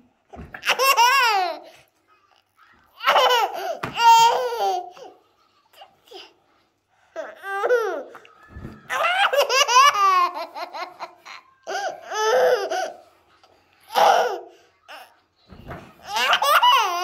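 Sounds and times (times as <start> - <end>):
toddler laughing: 3.0 - 6.4, 7.2 - 8.3, 8.9 - 13.0, 16.0 - 17.0.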